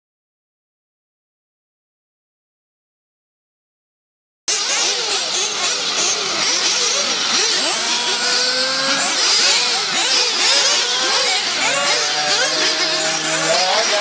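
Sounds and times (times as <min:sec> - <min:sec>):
small model engines revving: 0:04.5 - 0:14.0.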